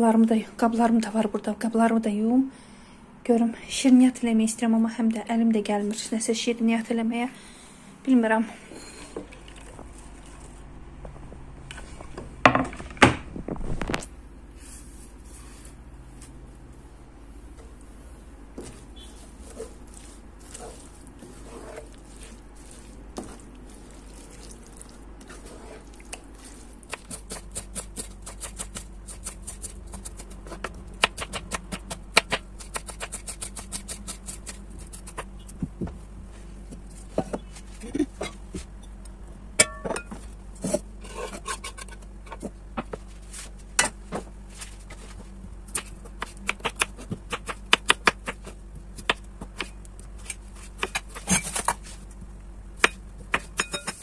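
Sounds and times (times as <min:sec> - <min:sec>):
wooden spoon scraping pot: 0:18.6 - 0:27.4.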